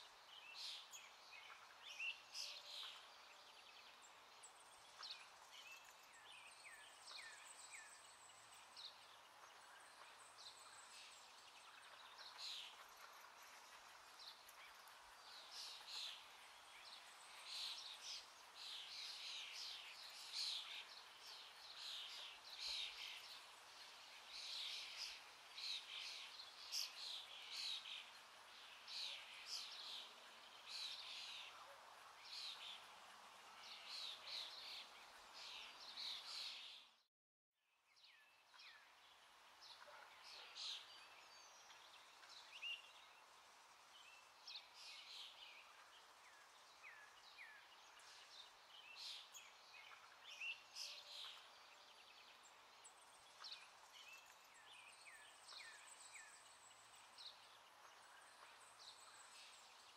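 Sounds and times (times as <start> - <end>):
low hiss: 0.0 - 36.8
small birds chirping: 0.0 - 37.1, 37.9 - 59.9.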